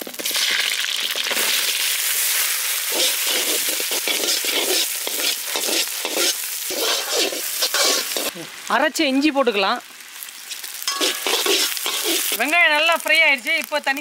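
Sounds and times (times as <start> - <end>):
vegetables sizzling in butter: 0.0 - 14.0
metal ladle stirring in wok: 2.9 - 8.3, 10.5 - 12.5.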